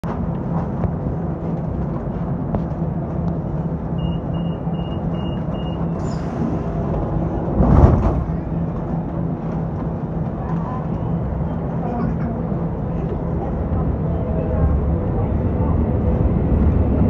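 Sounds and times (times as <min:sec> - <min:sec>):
train equipment humming: 0:00.0 - 0:17.0
short high warning beeps: 0:04.0 - 0:06.0
train doors thudding shut: 0:05.4 - 0:09.1.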